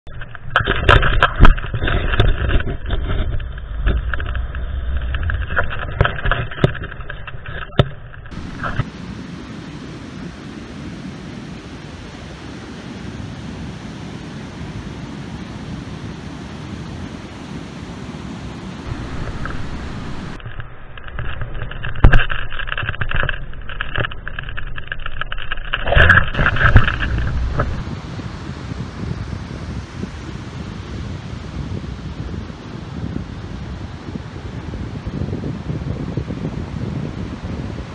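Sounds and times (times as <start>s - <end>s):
sharp clicks and knocks: 0.1s - 8.9s, 18.9s - 27.8s
wind buffeting microphone: 0.1s - 25.1s, 26.0s - 37.9s
surf: 0.1s - 37.9s
sharp wind knocks: 18.8s - 25.1s, 25.8s - 32.5s.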